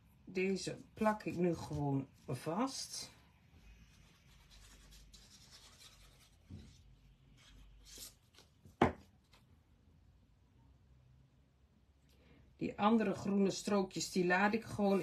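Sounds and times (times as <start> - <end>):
knock on table: 8.8 - 9.0.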